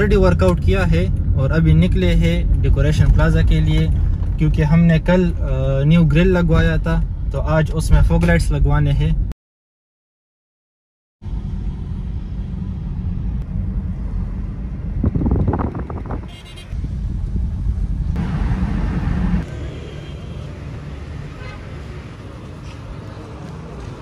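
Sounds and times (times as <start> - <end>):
road and tyre rumble: 0.0 - 9.3, 11.2 - 24.0
street traffic noise: 0.0 - 9.3, 11.2 - 24.0
car horn: 16.1 - 16.8, 21.3 - 21.7.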